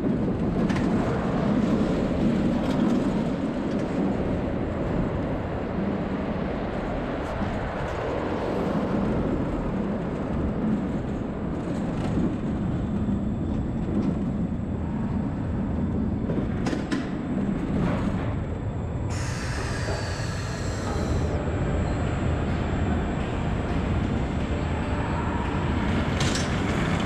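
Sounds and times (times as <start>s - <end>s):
roller coaster train rumbling on track: 0.0s - 27.0s.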